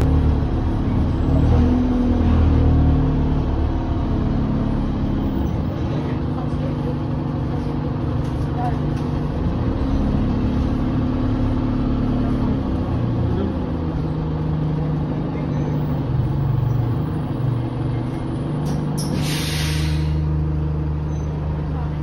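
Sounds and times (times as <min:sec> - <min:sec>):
bus engine hum: 0:00.0 - 0:22.0
air brake hiss: 0:19.0 - 0:20.2.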